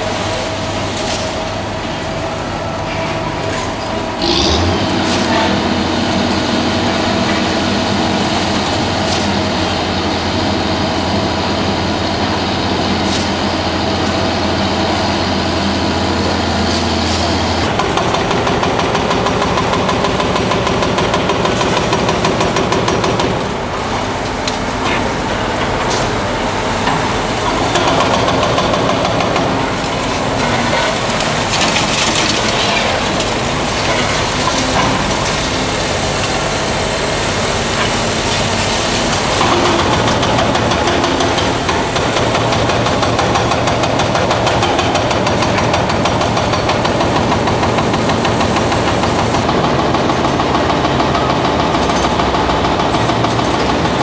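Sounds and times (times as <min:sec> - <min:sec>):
excavator diesel engines: 0:00.0 - 0:54.0
broken concrete clattering: 0:27.0 - 0:36.4.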